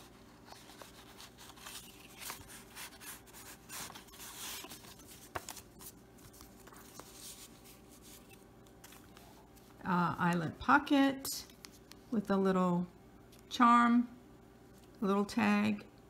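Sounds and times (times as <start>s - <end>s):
page turning: 0.0s - 9.8s
paper rustling and sliding: 0.0s - 9.8s.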